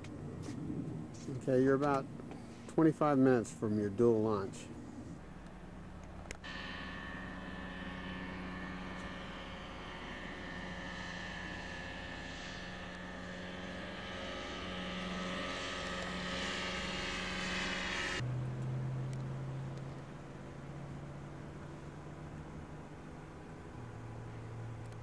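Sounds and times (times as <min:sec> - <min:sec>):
propeller plane engine drone: 0:00.0 - 0:25.0.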